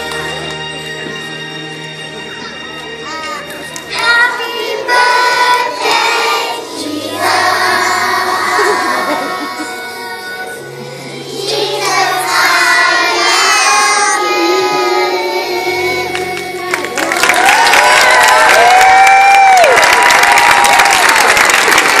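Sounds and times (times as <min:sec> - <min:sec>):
children singing: 0:03.9 - 0:17.0
applause and cheering: 0:16.1 - 0:22.0.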